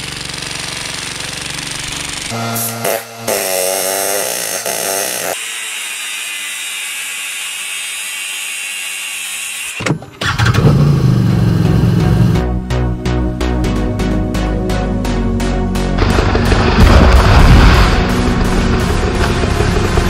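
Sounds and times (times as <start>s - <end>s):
angle grinder cutting metal: 0.0s - 9.8s
pneumatic air hammer chiselling: 0.0s - 12.3s
vehicle engine running: 10.2s - 12.7s, 15.8s - 20.0s.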